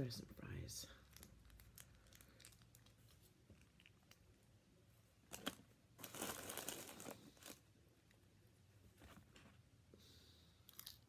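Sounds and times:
packaging tearing: 0:05.3 - 0:07.6
packaging crinkling: 0:05.3 - 0:07.7.

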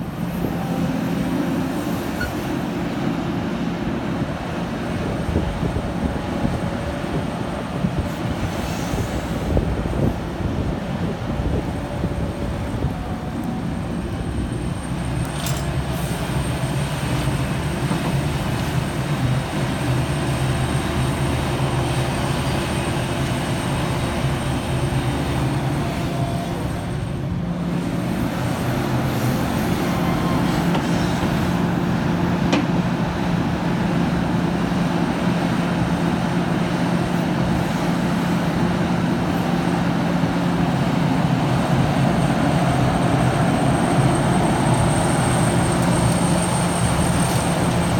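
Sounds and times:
excavator diesel engine droning: 0:00.0 - 0:47.9.

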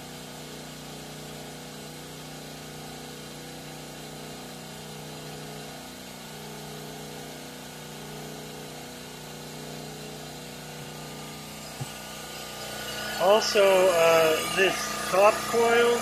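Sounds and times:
motor-generator humming: 0:00.0 - 0:16.0.

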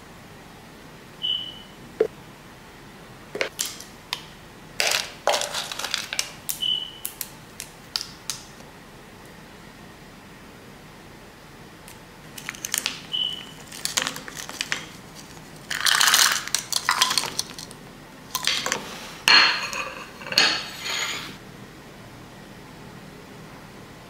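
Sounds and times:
frozen berries rattling into bowl: 0:04.8 - 0:06.4, 0:12.3 - 0:18.8
dishes clinking: 0:18.4 - 0:21.4.

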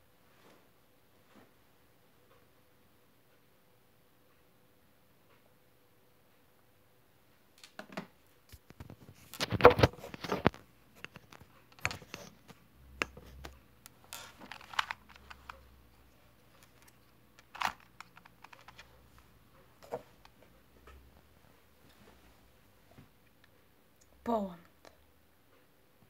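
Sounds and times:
puzzle cube clicks and taps: 0:09.4 - 0:15.6, 0:16.5 - 0:18.9.

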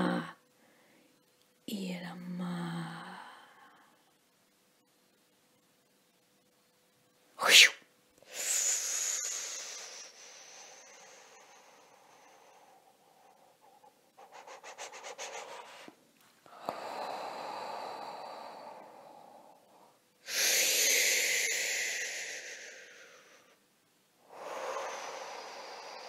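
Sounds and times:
person exhaling heavily: 0:24.3 - 0:26.0.

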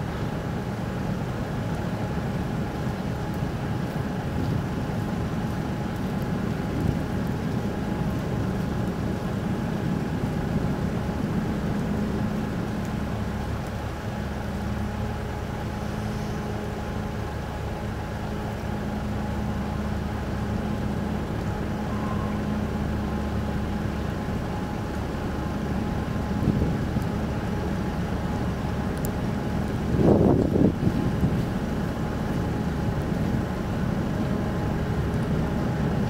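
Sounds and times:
ship engines droning: 0:00.0 - 0:36.0.

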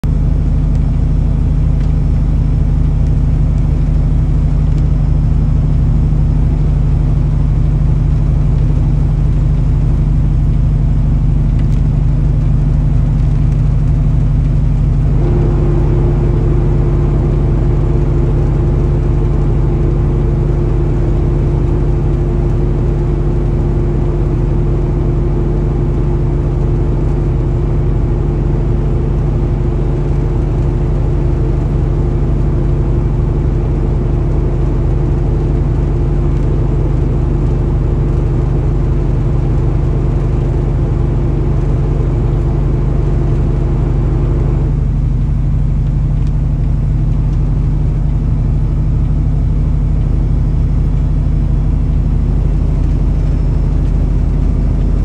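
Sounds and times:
truck engine drone: 0:00.0 - 0:55.0
steady tone: 0:13.4 - 0:37.2.

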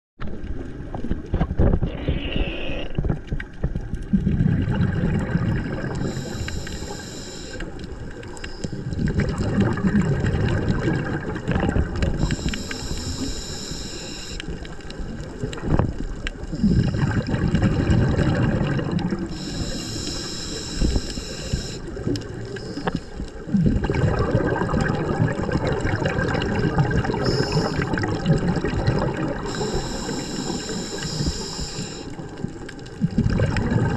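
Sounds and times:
gurgling exhaled bubbles: 0:00.3 - 0:33.9
regulator hissing inhale: 0:05.8 - 0:09.0, 0:12.2 - 0:14.6, 0:16.5 - 0:17.1, 0:19.3 - 0:23.4, 0:27.2 - 0:28.0, 0:29.4 - 0:32.3.

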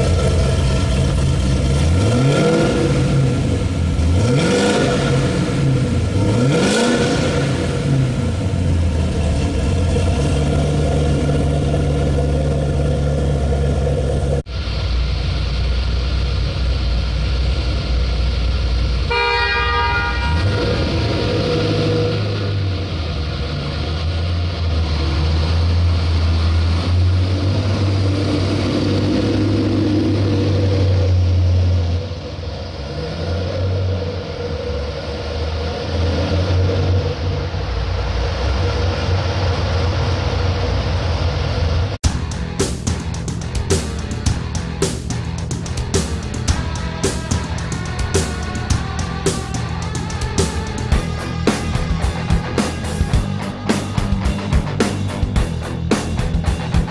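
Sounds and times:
car engine revving: 0:00.0 - 0:56.9
car horn blast: 0:19.1 - 0:21.1.

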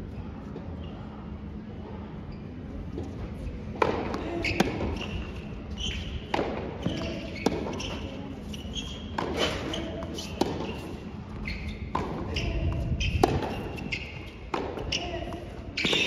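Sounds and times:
rackets striking tennis ball: 0:03.7 - 0:16.0
tennis ball bouncing: 0:03.7 - 0:16.0.

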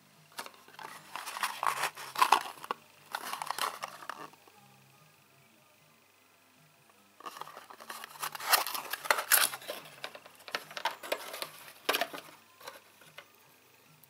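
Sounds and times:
rustling and scraping cardboard: 0:00.4 - 0:04.3, 0:07.2 - 0:12.8.

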